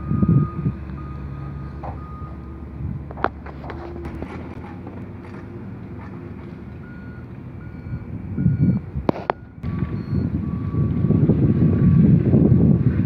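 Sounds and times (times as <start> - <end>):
reversing beeper short beeps: 0.0 - 2.4, 6.6 - 11.2
low gusty rumble: 0.0 - 13.0.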